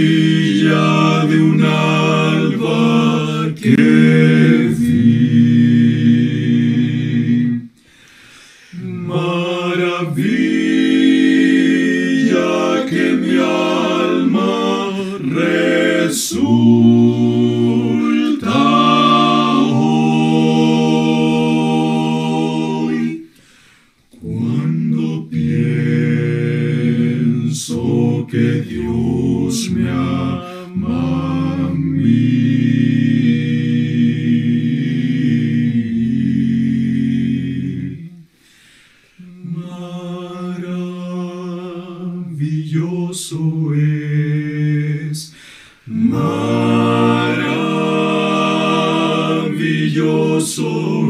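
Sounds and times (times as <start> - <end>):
male quartet singing a hymn: 0.0 - 51.0.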